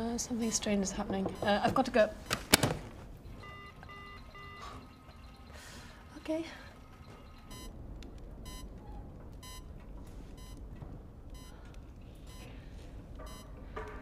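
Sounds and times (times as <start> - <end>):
low steady rumble: 3.0 - 13.8
electronic alert beeps: 3.2 - 7.8, 8.4 - 8.8, 9.4 - 9.7, 10.4 - 10.6, 13.3 - 13.5.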